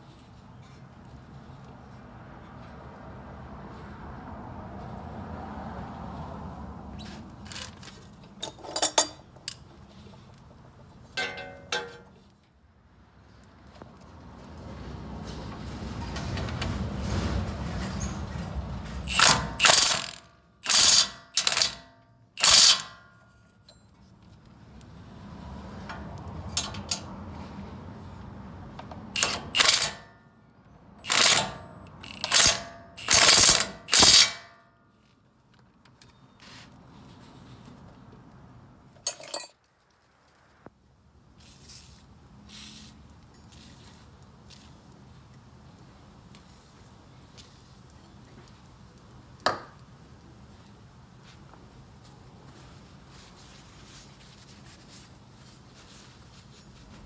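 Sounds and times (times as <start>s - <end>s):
ratchet wrench clicking: 19.1s - 23.2s, 28.8s - 30.0s, 31.0s - 34.6s.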